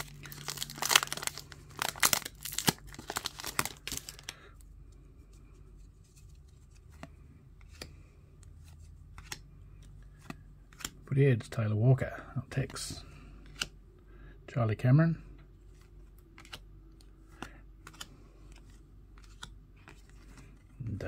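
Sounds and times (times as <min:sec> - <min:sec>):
foil wrapper crinkling and tearing: 0:00.0 - 0:04.4
cards clicking as handled: 0:06.1 - 0:11.0, 0:13.4 - 0:13.8, 0:15.7 - 0:20.7.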